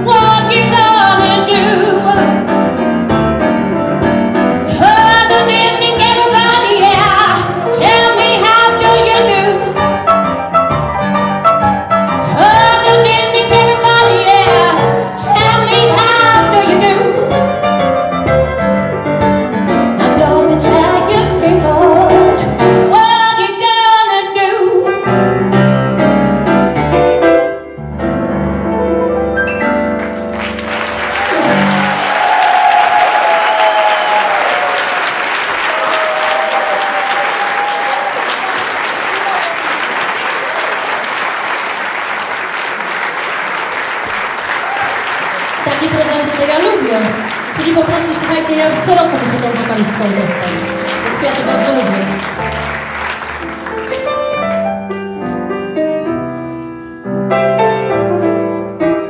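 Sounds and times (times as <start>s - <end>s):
woman singing blues: 0.0s - 2.4s, 4.7s - 9.7s, 12.2s - 17.3s, 20.0s - 24.9s
piano: 0.0s - 59.0s
audience applause: 30.0s - 54.8s.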